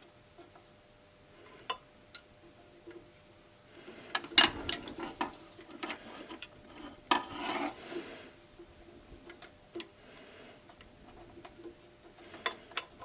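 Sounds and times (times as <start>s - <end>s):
metal tools clicking and scraping: 4.1s - 7.8s, 9.3s - 10.0s, 10.8s - 13.0s.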